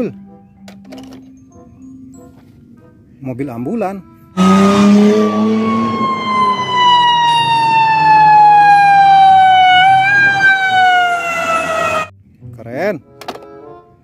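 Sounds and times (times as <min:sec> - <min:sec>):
ambulance siren falling tone: 0:04.4 - 0:12.1
low steady siren tone: 0:04.4 - 0:12.1.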